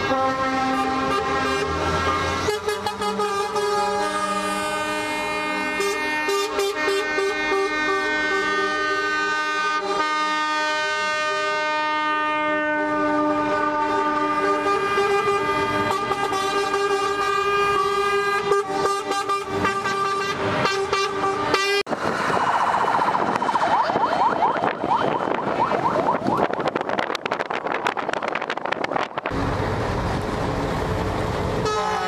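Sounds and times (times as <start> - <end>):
truck air horns blowing: 0.0 - 22.0, 31.6 - 32.0
truck engine driving by: 0.0 - 32.0
rushing noise: 20.3 - 32.0.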